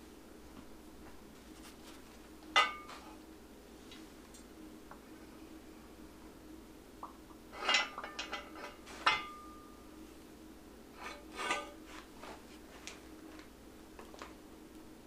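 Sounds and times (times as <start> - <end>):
metal clinking and knocking: 2.6 - 3.0, 7.7 - 9.6.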